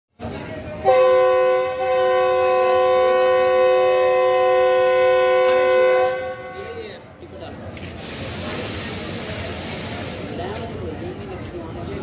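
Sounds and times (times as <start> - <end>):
locomotive air horn chord: 0.8 - 6.8.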